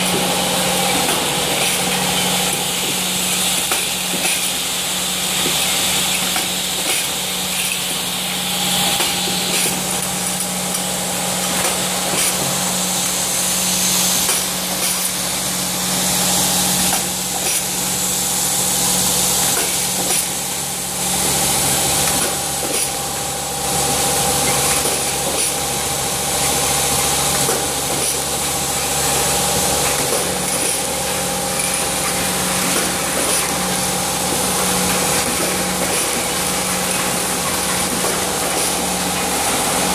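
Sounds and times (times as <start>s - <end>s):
pneumatic hiss: 0.0s - 23.0s
machine motor hum: 0.0s - 39.9s.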